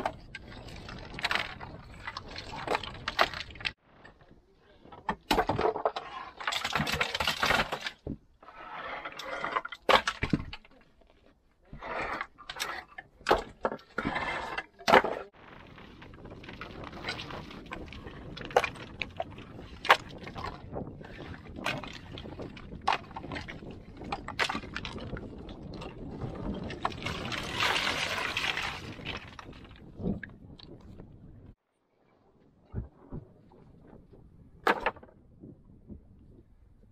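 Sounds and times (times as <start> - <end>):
stone slabs grinding and scraping: 0.0 - 4.2, 5.2 - 29.8.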